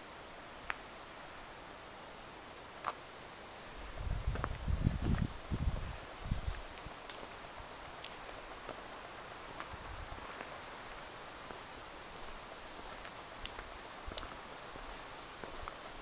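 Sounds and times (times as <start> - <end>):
soft steady hiss: 0.0 - 16.0.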